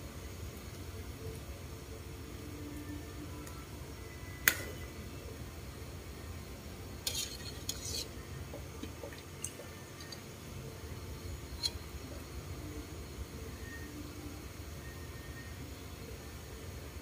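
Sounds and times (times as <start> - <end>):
steady low hum: 0.0 - 17.0
metal ladle scraping steel pot: 7.0 - 8.2, 11.5 - 11.8.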